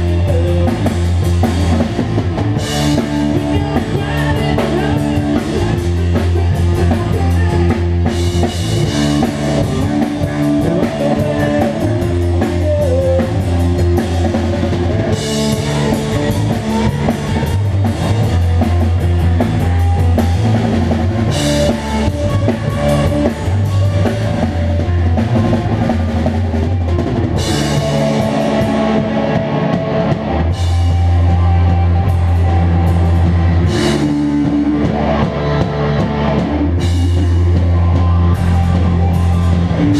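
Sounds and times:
instrumental rock band playing: 0.0 - 39.9.

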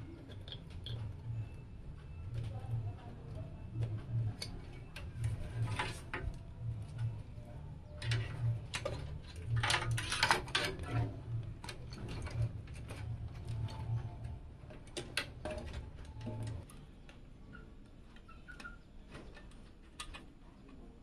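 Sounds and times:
low pulsing hum: 0.0 - 17.0
plastic cables clicking and rattling: 8.0 - 17.2.

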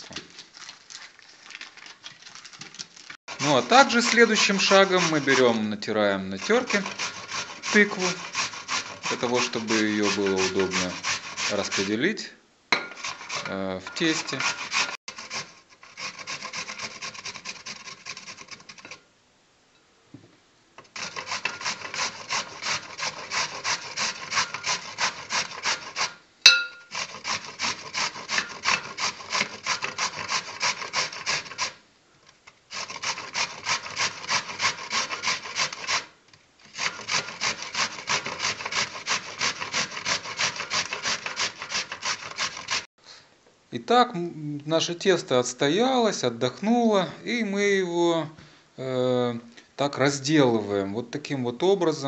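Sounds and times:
pumpkin grating on metal grater: 0.0 - 12.2, 13.0 - 19.0, 20.8 - 26.2, 26.8 - 42.9
sharp metallic clink: 26.4 - 26.9.

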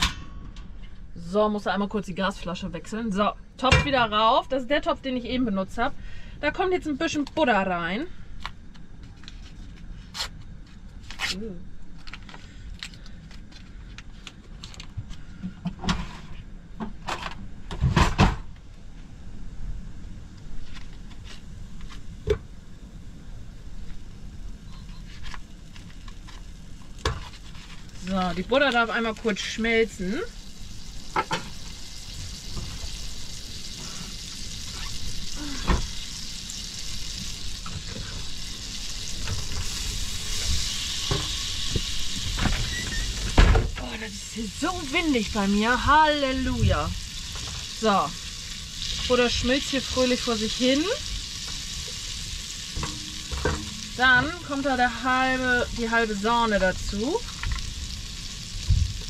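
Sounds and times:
butter sizzling in a pot: 23.8 - 59.0.

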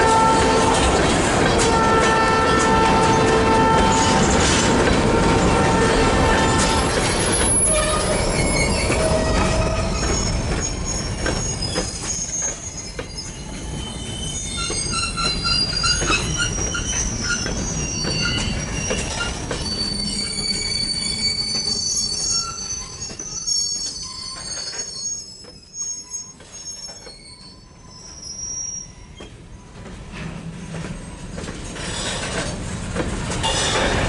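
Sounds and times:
wheels rumbling and clattering on track: 0.0 - 27.4, 29.0 - 34.0
train wheels squealing: 6.4 - 32.6.

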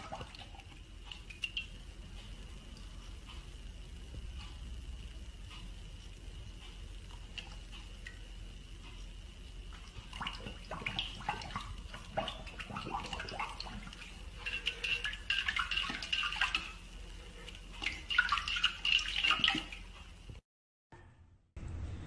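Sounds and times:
water splashing in bowl: 0.0 - 1.8, 9.7 - 16.8, 17.5 - 19.9
paws scraping a bowl: 10.8 - 16.7.

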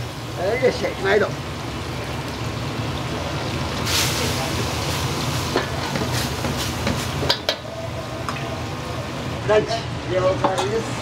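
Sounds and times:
food sizzling in wok: 0.0 - 10.1
gas burner flame roaring: 0.0 - 11.0
metal knocking on wok: 5.6 - 7.7, 10.4 - 10.8.

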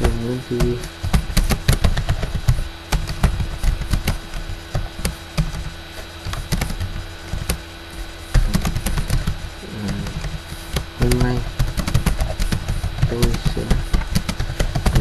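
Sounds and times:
faint steady hum: 0.0 - 15.0
keyboard keys clicking: 8.3 - 15.0.

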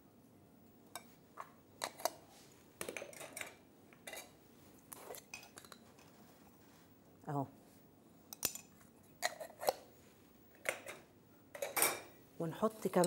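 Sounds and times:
utensils and dishes clinking: 2.8 - 4.4, 10.6 - 12.2.

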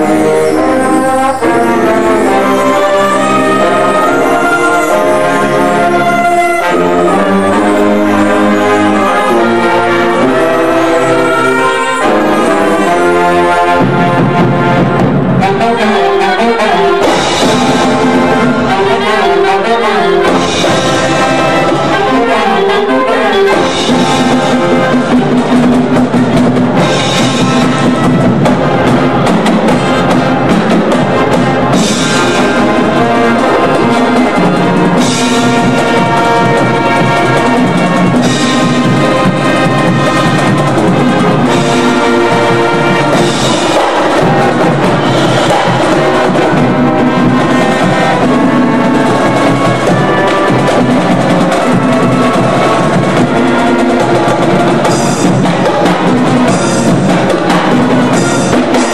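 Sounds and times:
brass section playing: 0.0 - 58.9
marching percussion: 0.0 - 58.9.

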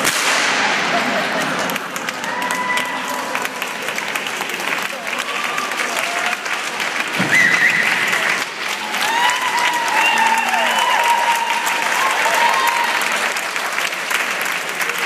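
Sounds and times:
crowd cheering: 0.0 - 15.0
audience applauding: 0.9 - 15.0.

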